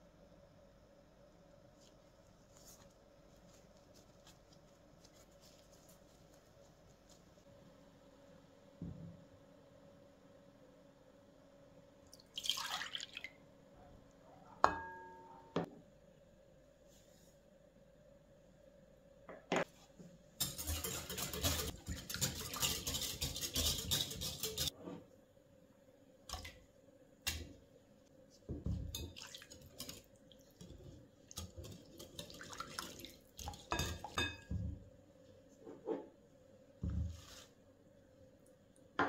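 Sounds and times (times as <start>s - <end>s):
whisk clinking against bowl: 20.4s - 24.7s
whisk rattling against glass bowl: 20.4s - 24.7s.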